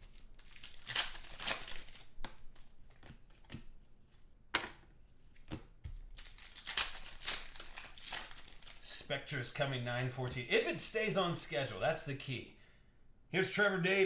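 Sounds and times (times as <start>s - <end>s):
foil wrappers crinkling and tearing: 0.0s - 2.6s, 6.0s - 8.9s.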